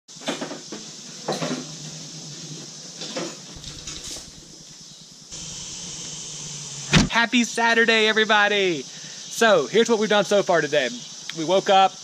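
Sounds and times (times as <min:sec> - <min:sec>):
metallic clanks and knocks: 0:03.6 - 0:04.8.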